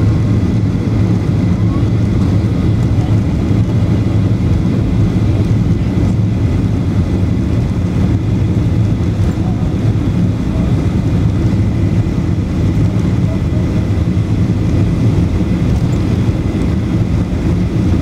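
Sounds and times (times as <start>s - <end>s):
airliner engine and wheel drone: 0.0s - 18.0s.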